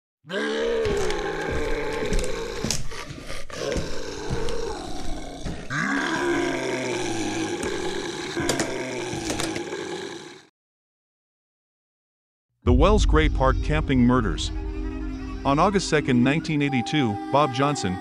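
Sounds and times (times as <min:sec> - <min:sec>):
guttural growls and groans: 0:00.3 - 0:10.5.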